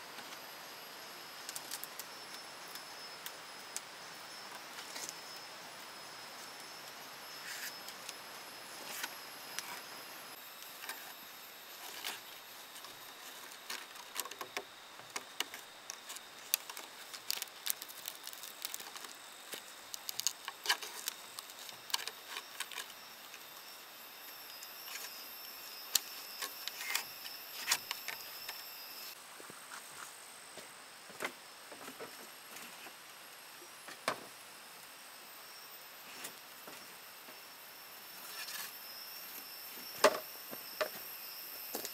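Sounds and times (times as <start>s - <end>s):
faint high-pitched hum: 0.0s - 41.9s.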